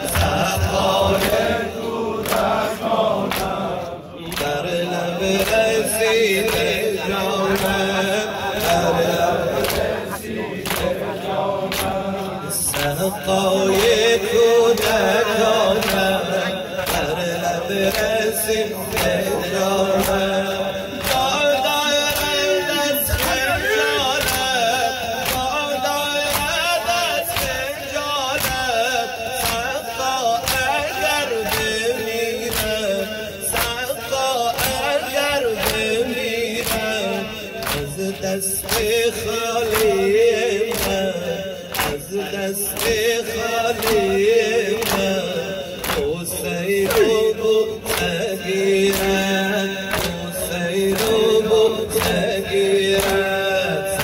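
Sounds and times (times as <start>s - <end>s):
man chanting into microphone: 0.0s - 54.0s.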